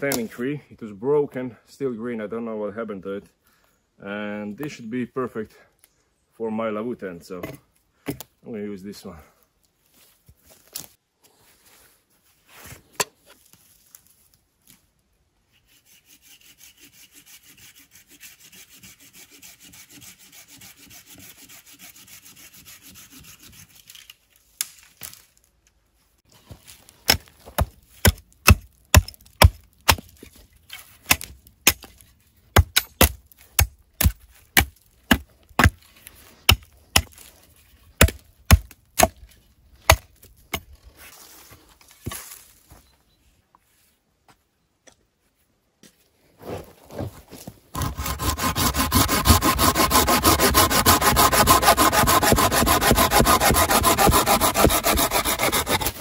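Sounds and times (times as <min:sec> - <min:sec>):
saw rasping through wood: 0:15.7 - 0:23.8, 0:47.8 - 0:56.0.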